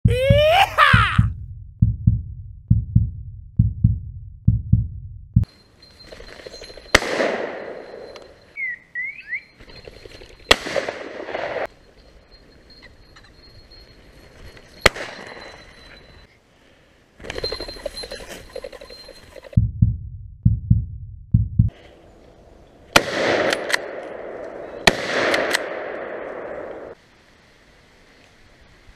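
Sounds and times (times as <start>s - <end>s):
heavy bass beat: 0.0s - 5.5s, 19.6s - 21.7s
echoing shotgun shots: 6.9s - 8.1s, 10.5s - 11.7s, 22.9s - 27.0s.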